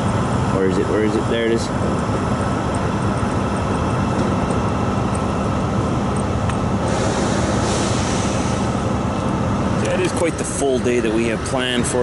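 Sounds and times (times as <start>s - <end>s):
highway traffic drone: 0.0s - 12.0s
trucks idling: 0.0s - 12.0s.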